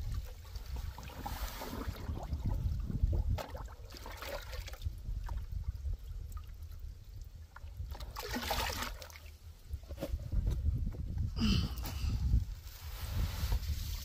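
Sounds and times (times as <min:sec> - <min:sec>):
water splashing in a drum: 0:00.0 - 0:09.4.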